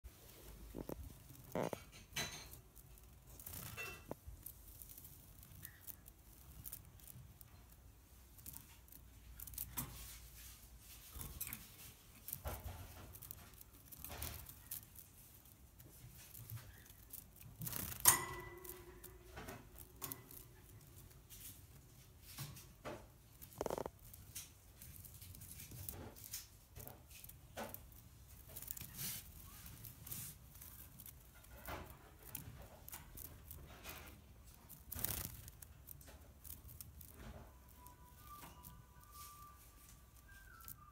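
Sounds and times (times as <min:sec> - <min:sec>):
birdcage rustles and clicks: 0:00.1 - 0:40.9
sharp metallic clink: 0:17.9 - 0:19.2.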